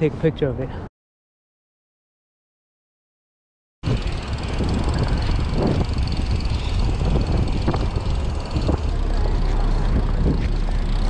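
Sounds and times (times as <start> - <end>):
city traffic noise: 3.8 - 11.0
wind on microphone: 3.8 - 11.0.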